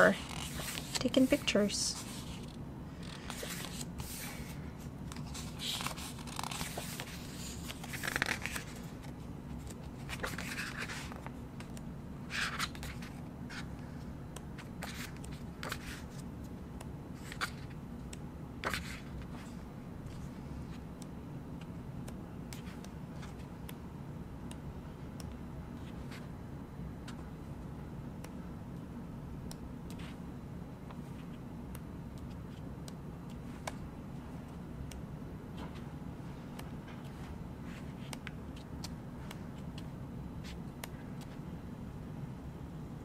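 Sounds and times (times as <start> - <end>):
photobook pages turning: 0.0 - 13.8, 14.6 - 16.2, 18.6 - 20.2.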